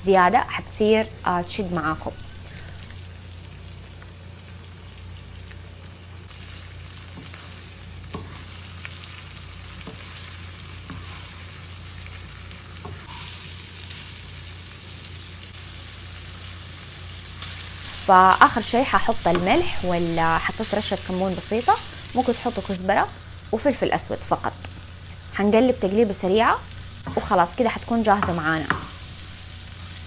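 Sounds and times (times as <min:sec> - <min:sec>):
meat sizzling in a pan: 0:00.1 - 0:30.0.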